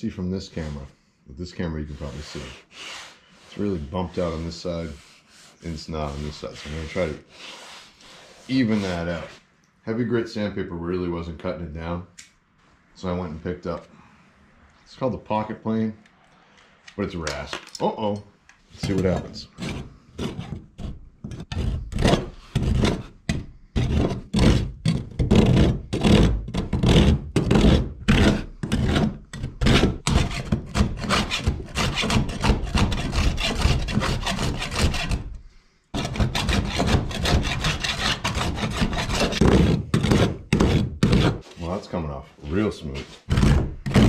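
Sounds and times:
rasp scraping plastic: 18.8 - 35.4, 36.0 - 41.8, 43.0 - 44.0.

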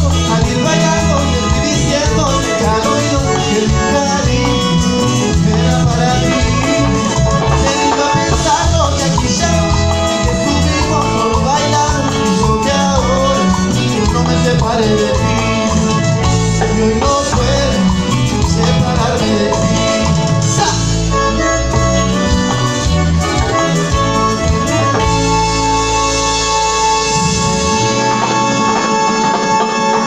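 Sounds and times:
person singing: 0.0 - 22.1
live cumbia band playing: 0.0 - 30.0.

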